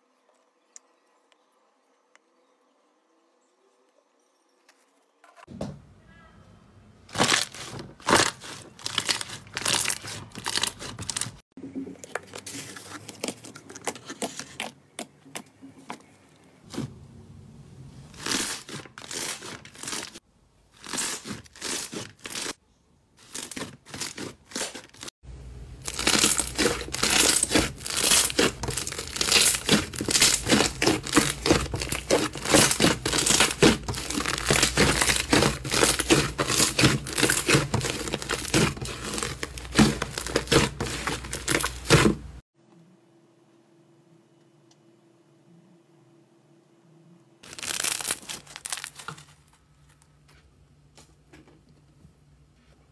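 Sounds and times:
foam slime crackling: 0:07.1 - 0:11.4, 0:18.1 - 0:20.2, 0:25.8 - 0:42.4, 0:47.4 - 0:49.3.

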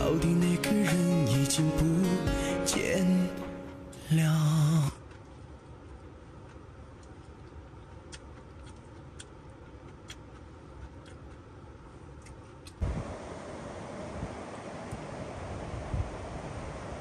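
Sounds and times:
low background noise: 0:00.0 - 0:17.0
wind noise hiss: 0:12.8 - 0:17.0.

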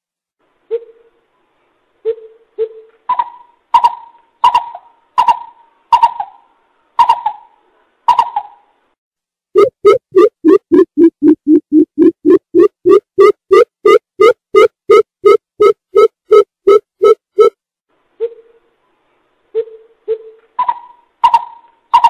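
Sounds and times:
bird hooting: 0:00.7 - 0:01.2, 0:19.6 - 0:22.0.

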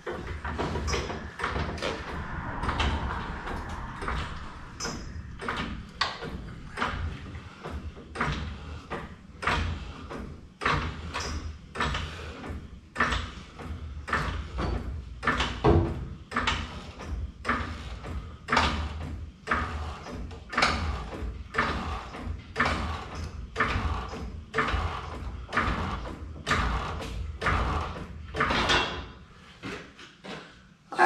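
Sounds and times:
hydraulic jack being pumped: 0:05.4 - 0:29.1.

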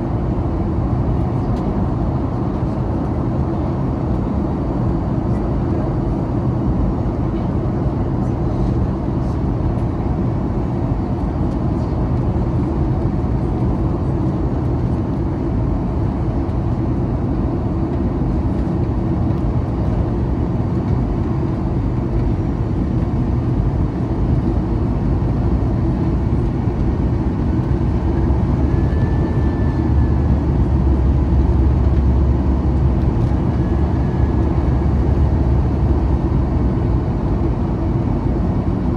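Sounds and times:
airliner engine rumble: 0:00.0 - 0:38.9
cabin airflow: 0:00.0 - 0:38.9.

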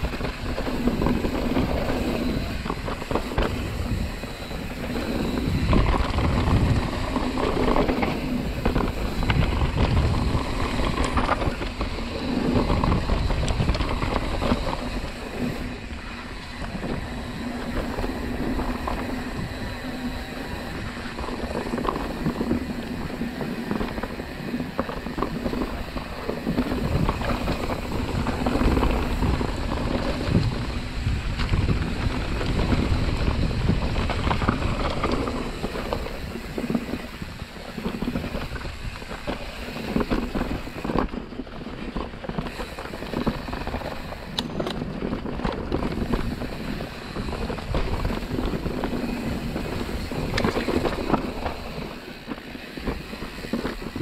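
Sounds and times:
bike clattering over bumps: 0:00.0 - 0:54.0
bike tyres rolling on dirt: 0:00.0 - 0:54.0
wind on microphone: 0:00.0 - 0:54.0.

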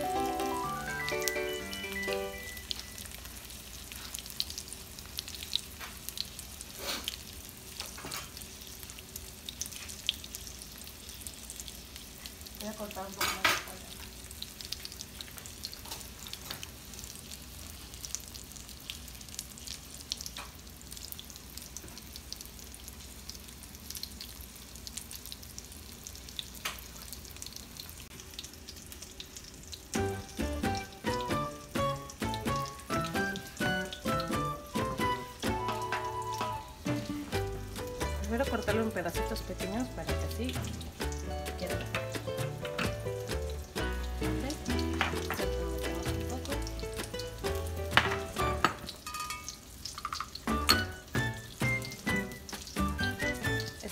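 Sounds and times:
music: 0:00.0 - 0:03.0, 0:30.0 - 0:48.9, 0:50.5 - 0:53.9
chicken frying in oil: 0:00.0 - 0:53.9.

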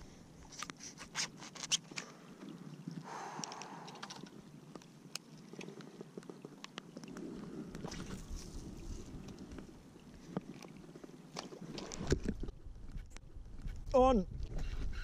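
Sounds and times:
wind rumble on microphone: 0:07.6 - 0:09.8, 0:11.9 - 0:15.0.

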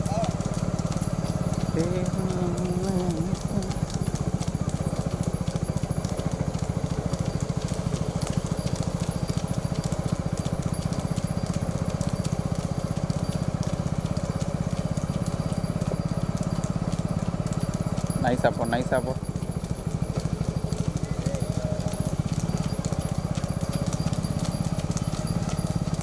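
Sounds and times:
hooves clopping on tarmac: 0:00.0 - 0:26.0
motorcycle engines running slowly: 0:00.0 - 0:26.0.

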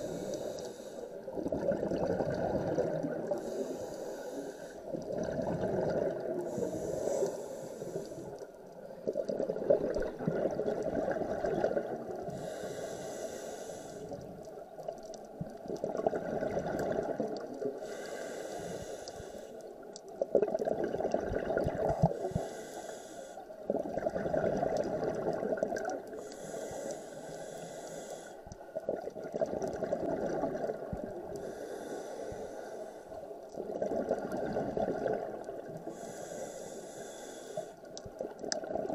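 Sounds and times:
regulator inhale hiss: 0:00.0 - 0:01.3, 0:03.3 - 0:05.0, 0:06.5 - 0:08.6, 0:12.2 - 0:14.4, 0:17.8 - 0:19.8, 0:22.0 - 0:23.6, 0:26.1 - 0:28.6, 0:31.3 - 0:33.5, 0:35.9 - 0:38.0
bubbling exhaled air: 0:01.3 - 0:04.0, 0:04.9 - 0:08.2, 0:20.3 - 0:22.6, 0:23.7 - 0:28.0, 0:28.9 - 0:32.2.

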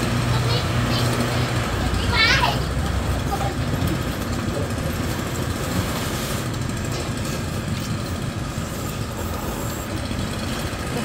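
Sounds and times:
small engines running: 0:00.0 - 0:11.0
street traffic: 0:00.0 - 0:11.0.

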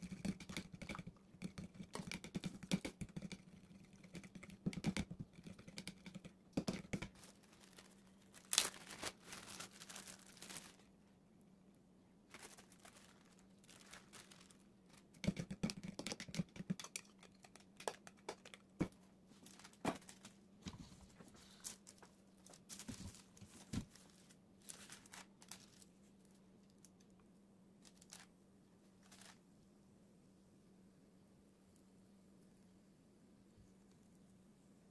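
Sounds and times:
taps and scrapes: 0:00.0 - 0:07.2, 0:15.1 - 0:19.0
faint steady hum: 0:00.0 - 0:34.9
paper and plastic crinkling: 0:06.7 - 0:10.9, 0:12.3 - 0:15.2, 0:18.8 - 0:27.0, 0:27.8 - 0:28.3, 0:29.0 - 0:29.4.

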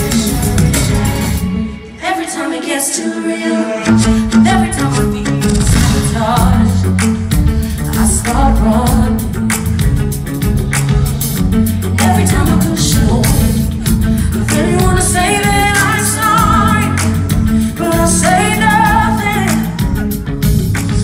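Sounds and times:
woman singing lead vocal: 0:00.0 - 0:10.1, 0:11.7 - 0:20.1
pop band playing: 0:00.0 - 0:21.0.

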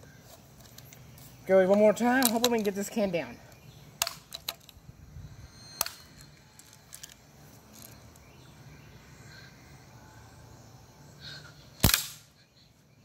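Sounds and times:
faint outdoor background noise: 0:00.0 - 0:13.0
bb gun shot: 0:11.8 - 0:12.2.

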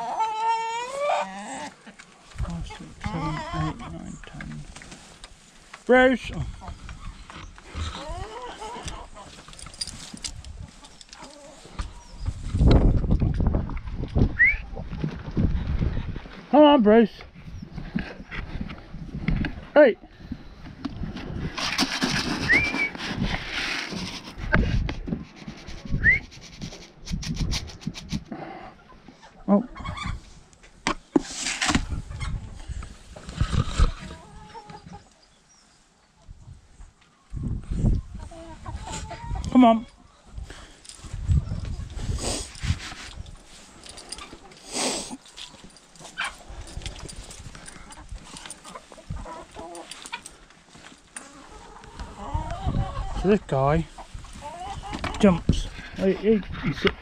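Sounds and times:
chicken squawk: 0:00.0 - 0:01.8, 0:07.9 - 0:09.3
chickens clucking: 0:00.0 - 0:04.9, 0:06.3 - 0:13.2, 0:26.6 - 0:30.4, 0:31.6 - 0:35.4, 0:36.1 - 0:43.2, 0:44.0 - 0:57.0
wind buffeting microphone: 0:11.8 - 0:16.5, 0:17.3 - 0:26.3, 0:31.7 - 0:34.2, 0:36.3 - 0:39.6, 0:40.2 - 0:43.8, 0:46.4 - 0:49.6, 0:51.8 - 0:57.0
short rising whistles: 0:22.4 - 0:23.0, 0:26.0 - 0:26.3.

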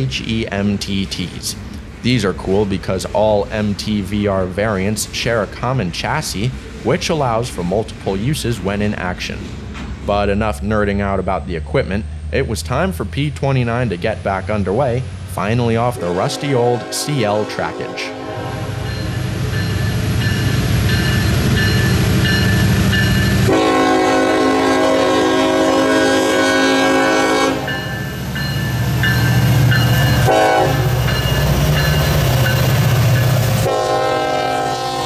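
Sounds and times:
diesel locomotive engine rumbling: 0:00.0 - 0:35.0
train air horn: 0:16.1 - 0:18.9, 0:23.4 - 0:27.7, 0:30.2 - 0:31.0, 0:33.6 - 0:35.0.

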